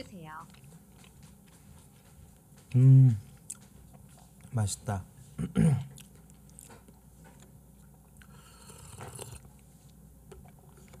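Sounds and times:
person chewing: 0:00.4 - 0:04.6, 0:05.8 - 0:11.0
short vocal sound: 0:02.7 - 0:03.2
slurping sip: 0:08.2 - 0:09.5.

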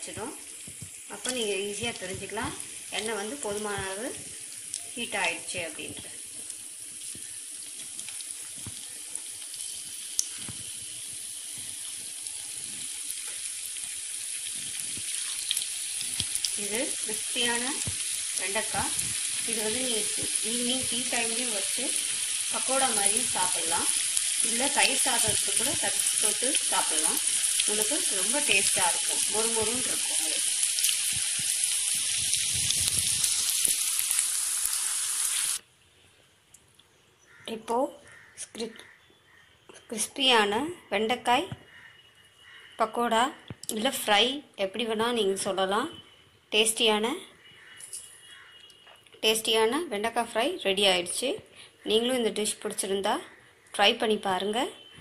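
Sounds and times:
deep-frying oil sizzling: 0:00.0 - 0:35.6
oil popping: 0:06.4 - 0:35.6.

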